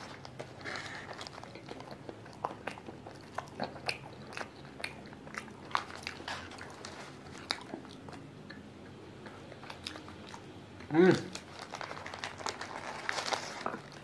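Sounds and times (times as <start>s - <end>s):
crunching crispy pastry: 0.0s - 8.2s, 11.2s - 14.0s.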